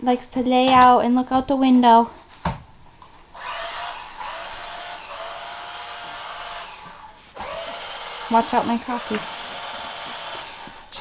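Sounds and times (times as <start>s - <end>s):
small electric motor whirring: 3.3s - 11.0s.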